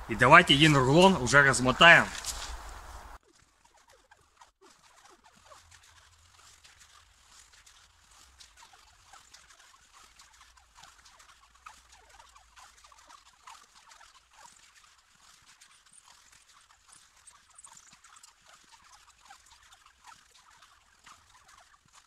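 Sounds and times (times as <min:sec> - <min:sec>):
cling film crackling: 0:00.0 - 0:13.0
cling film squeaks: 0:00.2 - 0:11.0.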